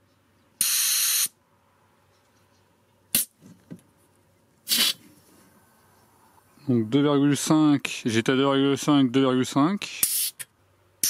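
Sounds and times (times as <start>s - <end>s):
air hissing from tyre valve: 0.6s - 1.3s, 4.7s - 5.1s, 10.0s - 10.5s.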